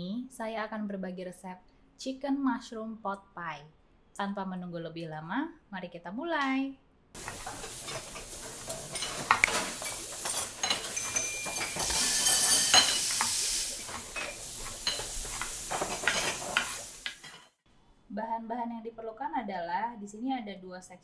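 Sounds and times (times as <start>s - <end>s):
utensils clinking and scraping: 7.2s - 17.5s
steady sizzle: 7.2s - 17.6s
short high rings: 11.0s - 13.0s.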